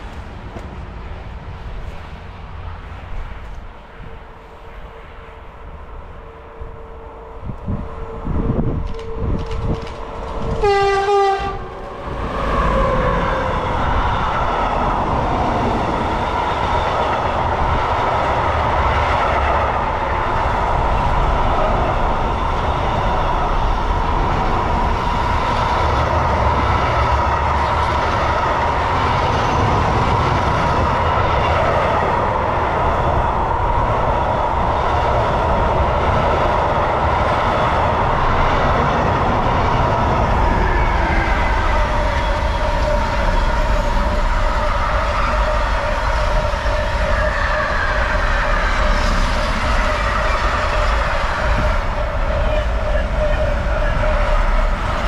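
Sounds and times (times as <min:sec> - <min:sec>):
wheels rumbling on rails: 0:00.0 - 0:55.0.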